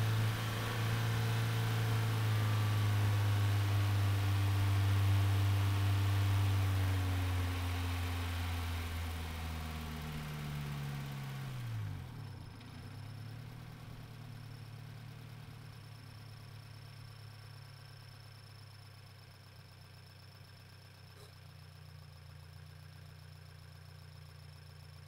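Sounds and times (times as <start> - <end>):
car engine: 0.0 - 16.8.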